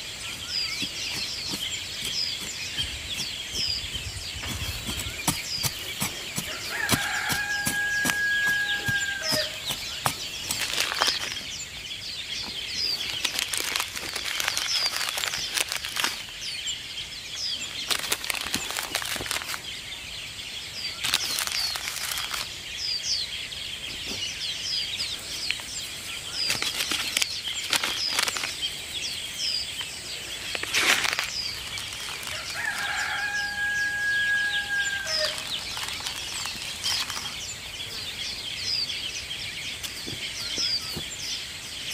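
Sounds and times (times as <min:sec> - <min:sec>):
rustling and scraping: 0:00.0 - 0:11.5, 0:12.4 - 0:16.3, 0:21.0 - 0:22.5, 0:26.4 - 0:28.7, 0:29.8 - 0:37.5
small birds chirping: 0:00.0 - 0:41.9
rooster crowing: 0:06.4 - 0:09.8, 0:32.3 - 0:35.6.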